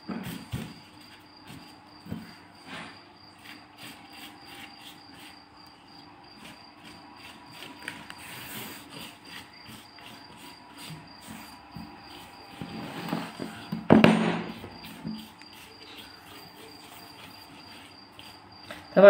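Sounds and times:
pastry brush slapping pastry sheets: 6.4s - 19.0s.

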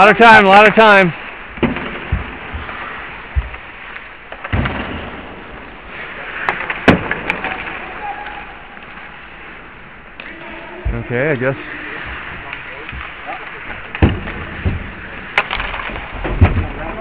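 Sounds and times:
hockey sticks clacking: 0.0s - 17.0s
skates on ice: 0.2s - 17.0s
puck cracking against boards: 1.5s - 5.2s, 6.4s - 9.1s, 12.0s - 17.0s
dull thumps: 1.6s - 3.7s.

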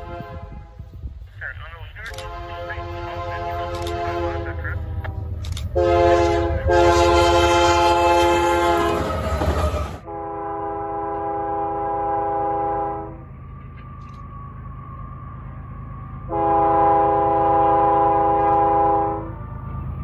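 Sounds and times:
locomotive air horn blasts: 0.0s - 0.9s, 2.1s - 13.3s, 16.3s - 19.4s
distant locomotive horn chord: 0.0s - 1.1s, 2.0s - 20.0s
rumble of engine and train: 0.0s - 20.0s.

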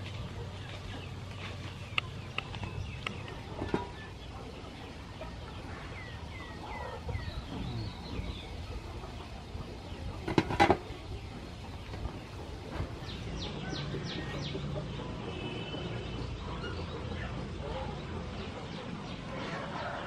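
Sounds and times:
birds chirping: 0.0s - 20.0s
metal pot lid clattering: 10.2s - 10.8s.

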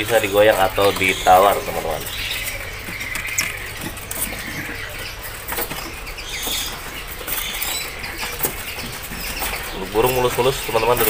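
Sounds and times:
birds fluttering wings: 0.0s - 11.0s.

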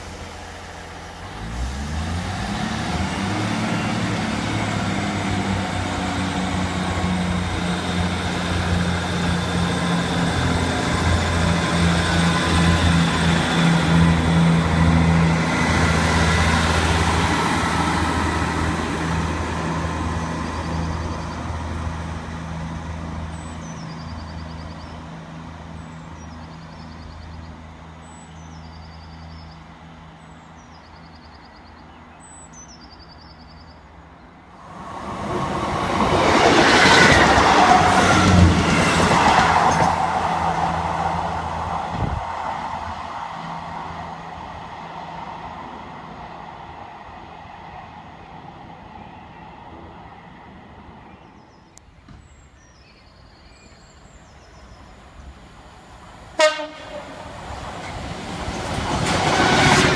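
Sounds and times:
train engine drone: 0.0s - 59.9s
bird chirping: 51.0s - 55.4s.

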